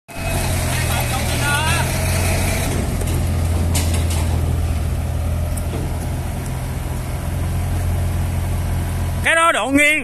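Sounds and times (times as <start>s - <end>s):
diesel engine humming: 0.1s - 10.0s
short clatter: 2.7s - 4.7s.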